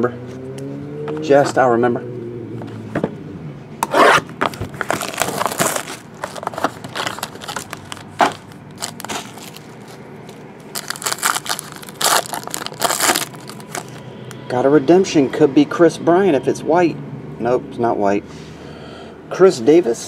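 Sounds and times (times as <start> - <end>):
cardboard box handled: 3.9 - 9.6
foil wrapper crinkling and tearing: 4.6 - 10.0, 10.6 - 14.0.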